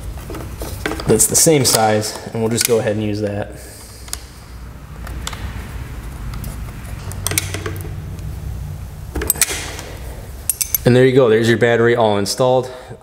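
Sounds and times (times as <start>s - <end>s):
steady low hum: 0.0s - 13.0s
metal clicks and scrapes of bolt: 6.3s - 8.3s, 9.2s - 10.9s.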